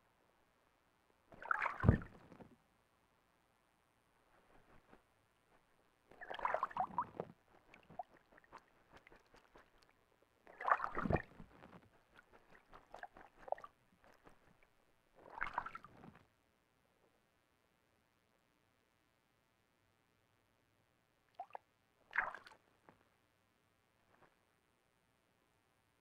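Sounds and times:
owl splashing water with wings: 1.4s - 2.3s, 6.1s - 16.0s, 22.1s - 22.6s
water drips: 6.1s - 11.4s.

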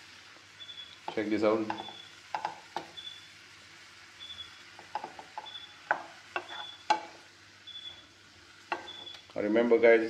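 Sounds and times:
spatula knocking against pan: 1.1s - 3.0s, 4.8s - 7.2s, 8.7s - 9.1s
spatula scraping pan: 4.8s - 7.3s, 8.6s - 9.2s.

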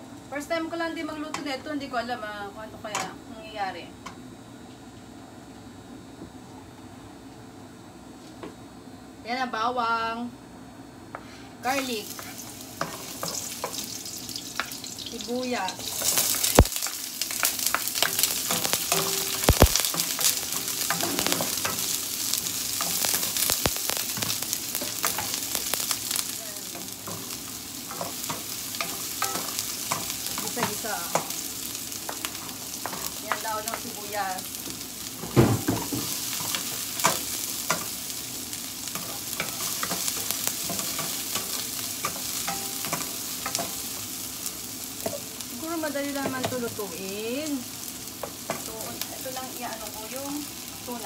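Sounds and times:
onions sizzling in frying pan: 0.0s - 5.8s, 10.8s - 51.0s
wooden spoon scraping pan: 19.9s - 21.9s.

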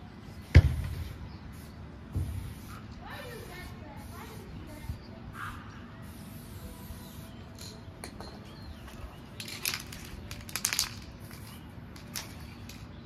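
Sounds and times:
spray paint can hissing: 1.5s - 7.8s, 9.4s - 12.9s.

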